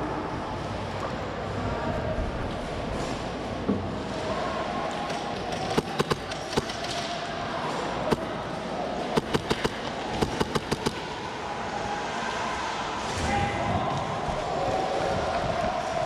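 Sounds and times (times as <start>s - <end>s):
steady background noise: 0.0s - 16.0s
airsoft gun shots: 5.6s - 6.9s, 9.1s - 11.1s.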